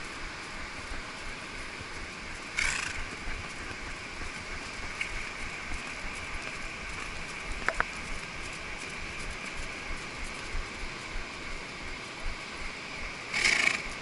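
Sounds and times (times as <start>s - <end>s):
horse hooves on sand: 0.0s - 14.0s
loud rustling burst: 1.5s - 11.9s.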